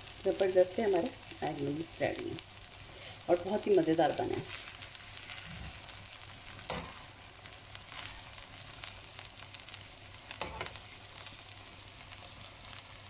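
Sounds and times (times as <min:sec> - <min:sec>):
noodles sizzling in a frying pan: 0:00.0 - 0:13.0
tongs clicking against pan: 0:06.7 - 0:07.0.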